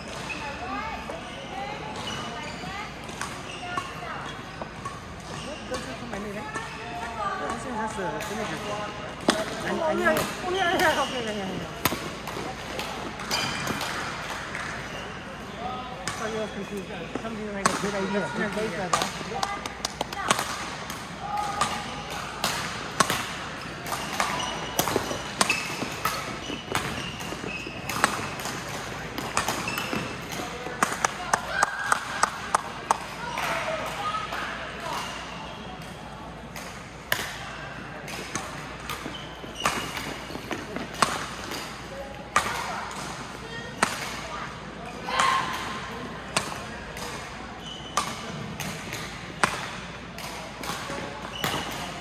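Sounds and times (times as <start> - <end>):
shoes squeaking on floor: 0.0 - 6.6, 9.6 - 11.7, 13.2 - 13.8, 23.6 - 28.3, 38.9 - 41.0, 47.6 - 48.2, 51.2 - 51.8
rackets hitting shuttlecock: 17.2 - 34.0, 36.5 - 44.2, 45.2 - 52.0.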